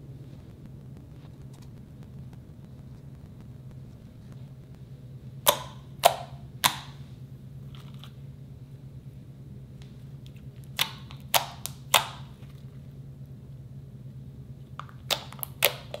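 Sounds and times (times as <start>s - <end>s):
slime popping: 5.4s - 7.0s, 14.8s - 16.0s.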